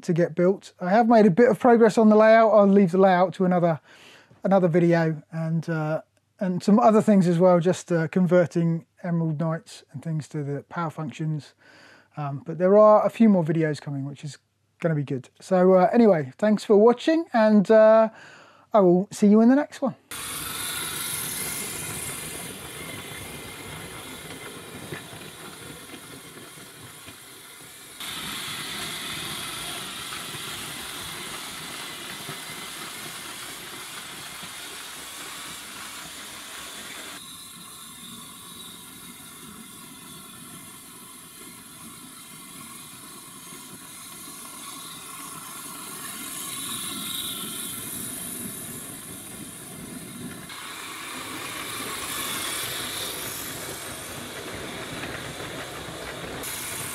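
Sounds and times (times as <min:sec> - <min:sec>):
toy trains whirring on track: 0:01.0 - 0:03.8, 0:20.1 - 0:56.9.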